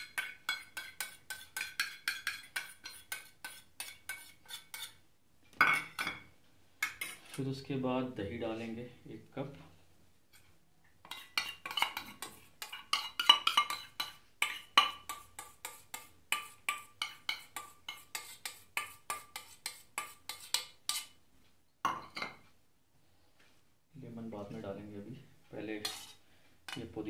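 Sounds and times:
spoon clinking on steel bowl: 0.0s - 4.3s, 11.1s - 15.6s.

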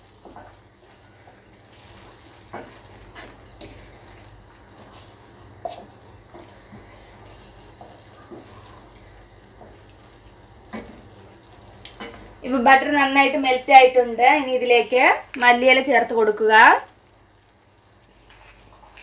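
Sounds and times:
spoon stirring in a pan: 0.0s - 12.4s
thick gravy simmering in a pan: 0.0s - 12.4s, 16.6s - 19.0s.

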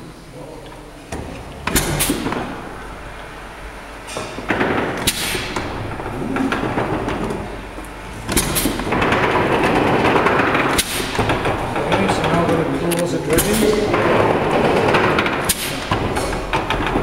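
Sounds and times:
sharp knocks: 4.1s - 7.5s, 8.2s - 12.7s, 13.3s - 17.0s.

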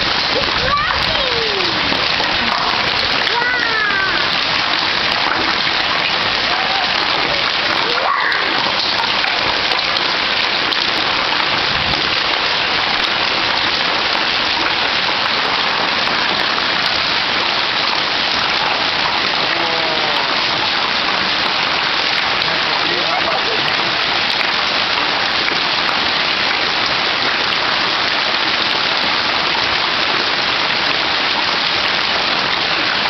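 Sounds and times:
hailstones pelting: 0.0s - 28.0s.

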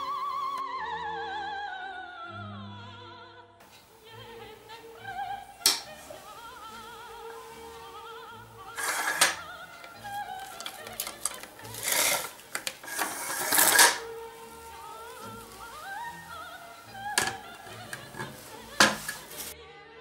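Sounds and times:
opera singing over music: 0.0s - 20.0s
cling film crinkling: 3.7s - 19.6s
dispenser blade cutting film: 5.6s - 7.7s, 8.7s - 19.6s.

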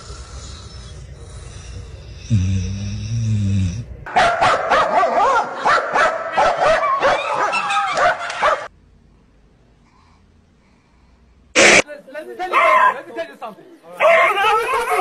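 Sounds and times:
low snore: 0.0s - 4.1s
animal yelps and squeals: 6.7s - 8.7s.

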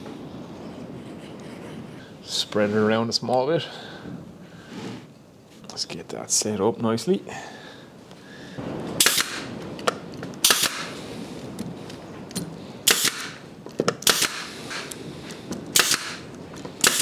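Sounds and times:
pneumatic nailer firing: 9.0s - 9.5s, 10.4s - 11.0s, 12.8s - 15.0s, 15.7s - 17.0s.

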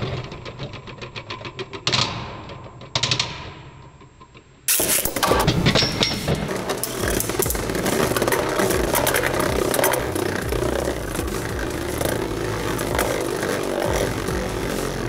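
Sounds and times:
tops clacking together: 0.0s - 15.0s
spinning tops whirring: 4.7s - 15.0s.

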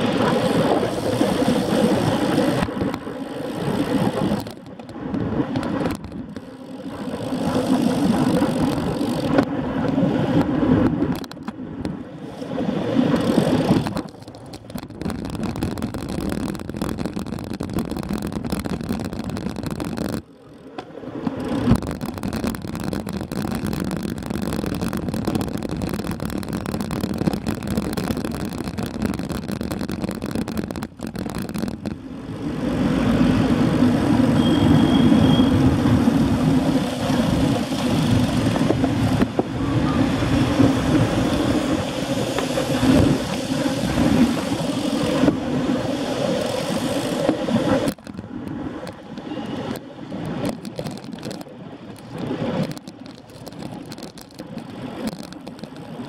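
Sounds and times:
wind and road noise of bicycle: 0.0s - 56.0s.

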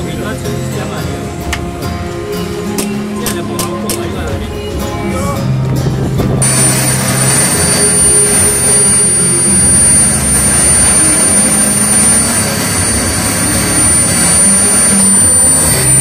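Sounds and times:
small jet engine whining: 6.4s - 16.0s.

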